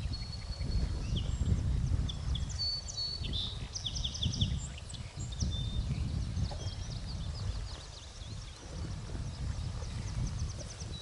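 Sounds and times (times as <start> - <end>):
songbirds chirping and whistling: 0.0 - 11.0.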